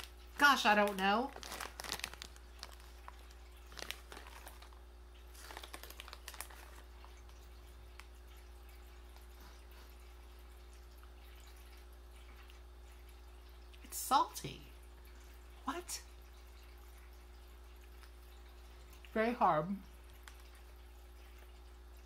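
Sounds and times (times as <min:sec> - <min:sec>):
plastic bag rustling: 0:00.0 - 0:07.4.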